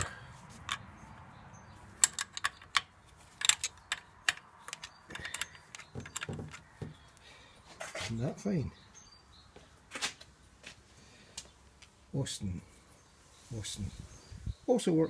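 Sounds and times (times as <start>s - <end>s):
spanner clinking on nuts: 2.0s - 6.7s.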